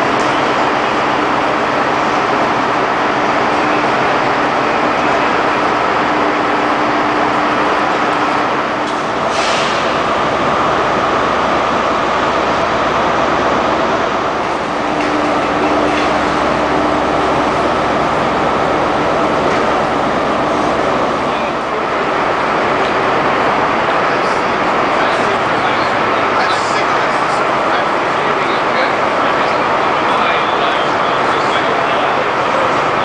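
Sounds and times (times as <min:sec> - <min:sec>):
rumble and hum of trains: 0:00.0 - 0:33.0
short hiss: 0:09.3 - 0:09.9.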